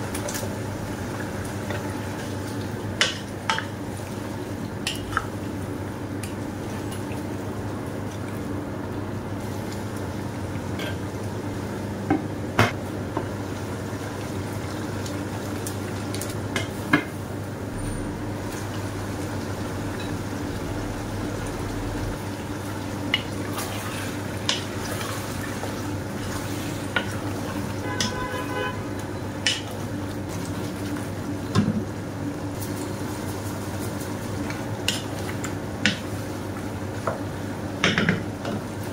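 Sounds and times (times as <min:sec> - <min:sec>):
low hum: 0:17.7 - 0:22.8.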